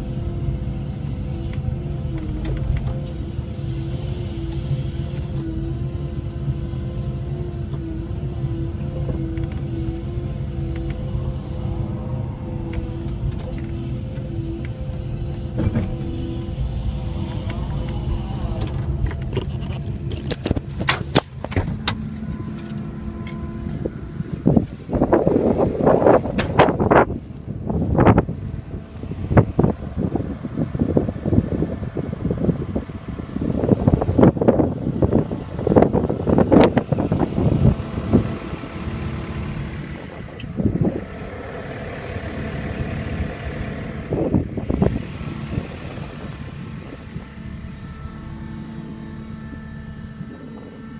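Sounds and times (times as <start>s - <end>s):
diesel engine running under load: 0.0s - 50.9s
hydraulic whine: 0.0s - 50.9s.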